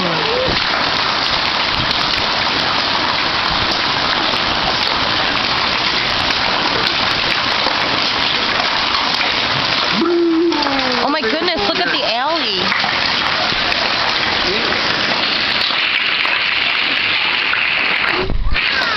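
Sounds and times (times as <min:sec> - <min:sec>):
hail pattering on pavement and roof: 0:00.0 - 0:09.9, 0:10.5 - 0:18.9
person speaking: 0:09.9 - 0:12.7.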